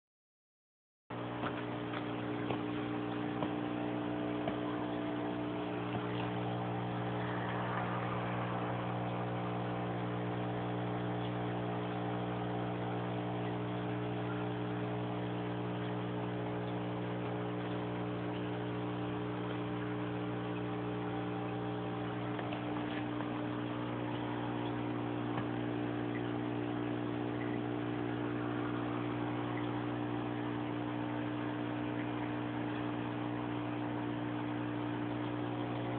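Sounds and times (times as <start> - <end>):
aquarium pump hum: 1.1 - 35.9
bubbling water hiss: 2.0 - 16.4.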